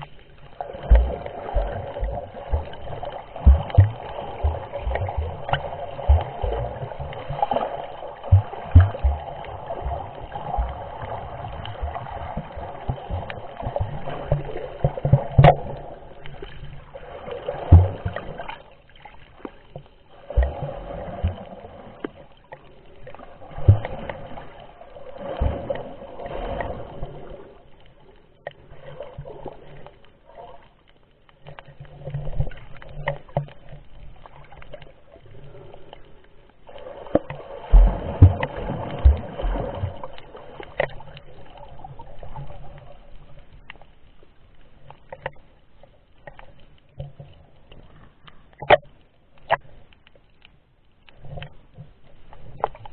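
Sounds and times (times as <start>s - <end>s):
underwater water wash: 0.0s - 52.9s
low knocks and thumps: 0.9s - 7.2s, 8.2s - 10.9s, 37.7s - 40.0s.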